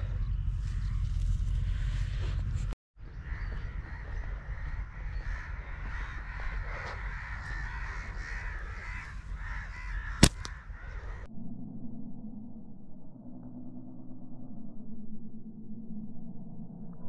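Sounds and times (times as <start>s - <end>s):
low hum: 0.0s - 17.0s
low rumble: 0.0s - 17.0s
crows cawing: 3.0s - 11.3s.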